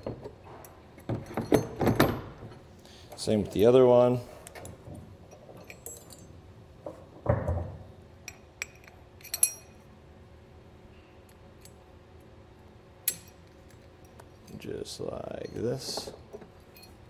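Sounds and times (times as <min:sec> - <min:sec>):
metal chain clinking: 0:00.0 - 0:03.3, 0:05.2 - 0:06.4, 0:08.3 - 0:09.9, 0:13.1 - 0:17.0.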